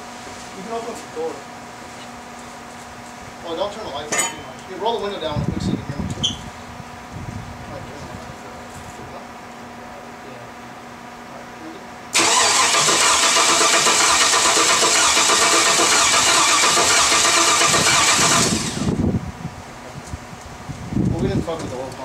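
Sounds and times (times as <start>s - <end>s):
engine starter cranking: 12.2s - 19.0s.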